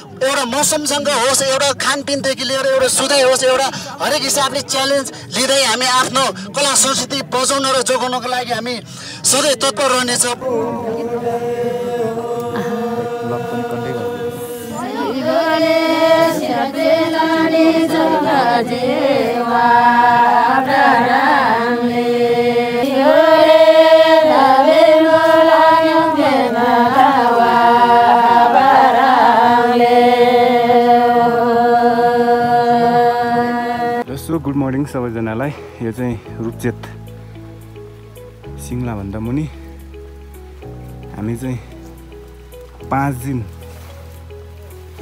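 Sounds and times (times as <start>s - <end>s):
women singing in unison: 10.4s - 34.0s.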